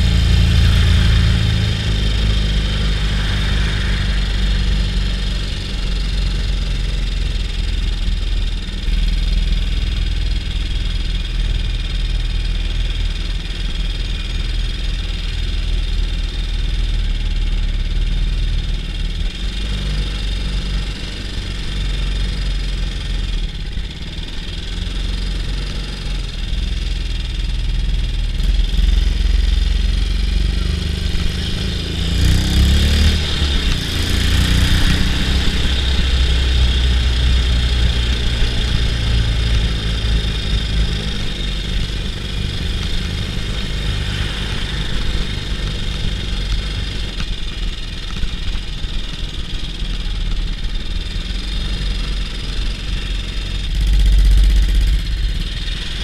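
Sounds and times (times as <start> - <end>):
motorcycle engine running: 0.0 - 56.0.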